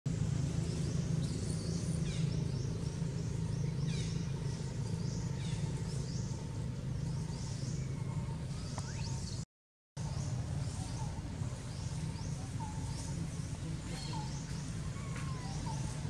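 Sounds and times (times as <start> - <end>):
low rumble: 0.1 - 9.4
birds chirping: 0.1 - 16.0.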